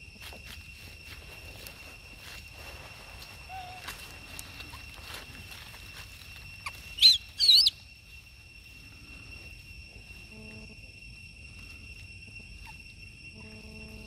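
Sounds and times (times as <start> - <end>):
high insect drone: 0.0 - 14.0
young monkey squealing: 3.5 - 3.9, 6.6 - 7.8.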